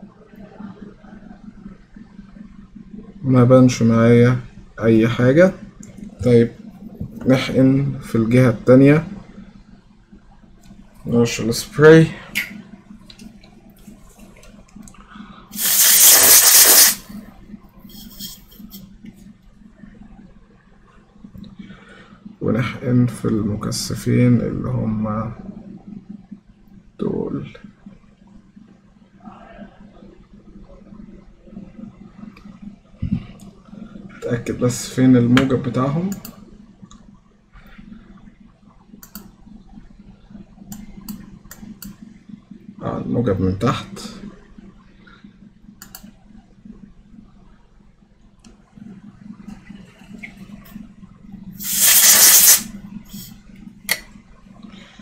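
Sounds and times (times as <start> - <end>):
steady low hum: 0.0 - 55.0
aerosol spray hissing: 15.6 - 17.0, 51.6 - 53.4.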